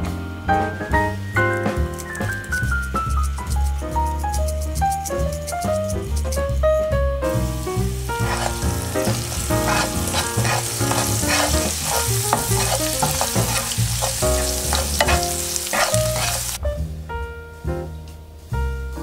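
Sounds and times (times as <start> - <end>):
garlic sizzling in a pan: 1.4 - 6.7, 7.3 - 16.6
wooden spatula scraping a pan: 7.9 - 16.6.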